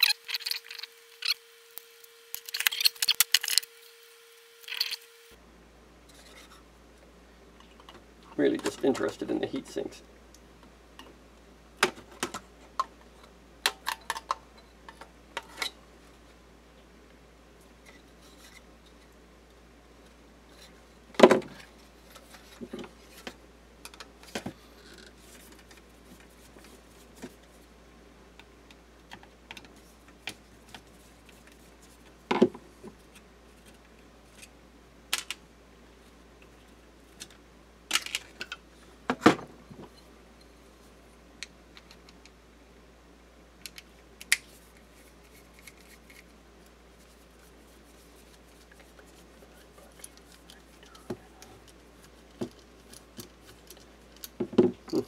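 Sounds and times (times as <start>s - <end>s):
screwdriver working: 0.0s - 3.7s, 4.6s - 5.1s.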